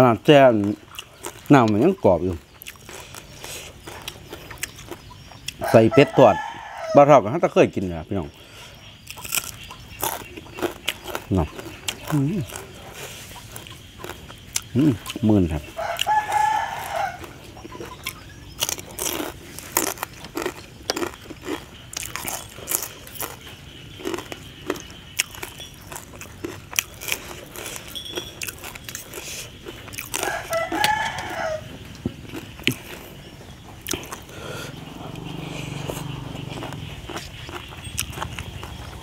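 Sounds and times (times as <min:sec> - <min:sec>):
chewing and crunching: 0:00.0 - 0:06.9, 0:07.7 - 0:39.0
rooster crowing: 0:05.6 - 0:07.3, 0:15.7 - 0:17.5, 0:30.0 - 0:31.9.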